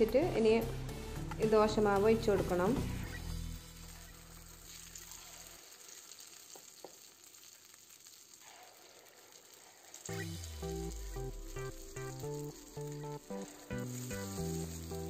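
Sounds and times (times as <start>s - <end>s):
background music: 0.0s - 5.0s, 10.1s - 15.0s
batter sizzling in hot oil: 0.8s - 15.0s.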